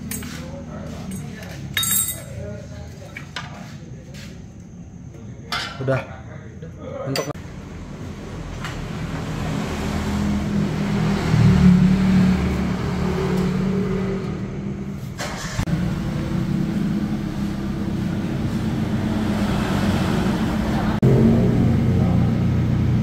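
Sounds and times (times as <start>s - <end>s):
car engine revving and idling: 7.6s - 23.0s.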